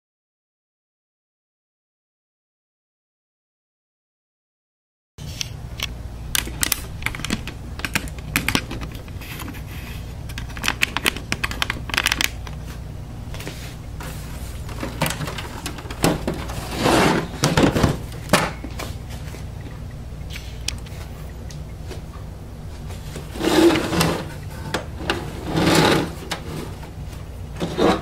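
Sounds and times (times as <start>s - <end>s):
low hum: 5.2s - 28.0s
panel scraping rustle: 13.4s - 18.6s, 23.0s - 27.0s
computer case clicks and knocks: 14.7s - 16.6s.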